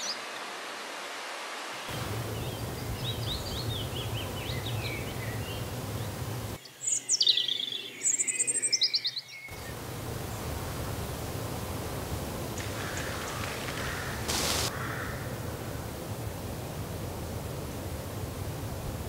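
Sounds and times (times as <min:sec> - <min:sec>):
songbird singing: 0:01.9 - 0:16.0.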